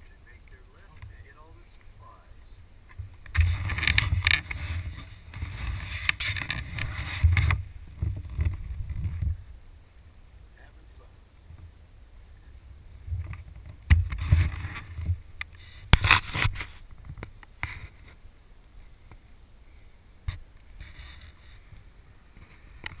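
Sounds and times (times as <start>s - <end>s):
wind buffeting microphone: 2.9s - 9.7s.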